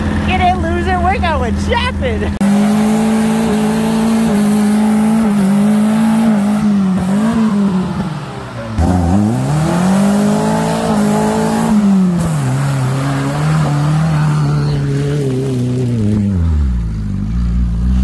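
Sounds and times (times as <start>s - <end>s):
car engine revving: 0.0s - 18.0s.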